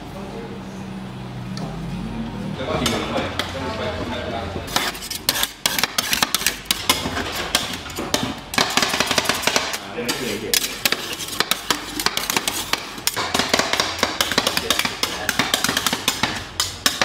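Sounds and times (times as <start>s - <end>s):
metal spatulas chopping and scraping: 4.7s - 17.0s.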